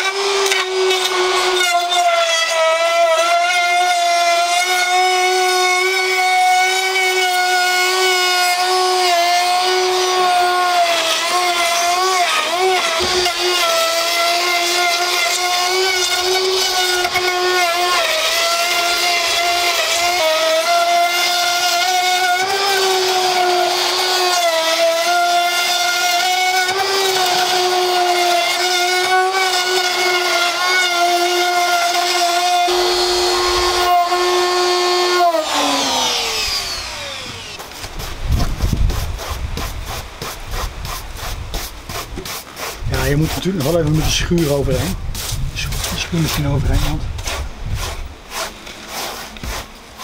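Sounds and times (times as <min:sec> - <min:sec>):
router whining cutting wood: 0:00.0 - 0:38.8.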